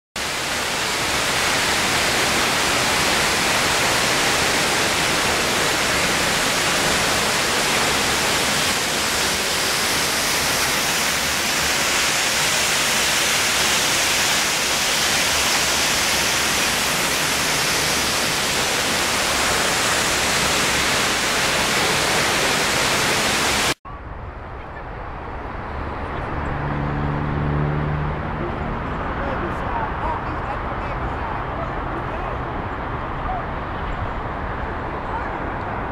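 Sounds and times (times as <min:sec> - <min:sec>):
waterfall rushing: 0:00.2 - 0:23.8.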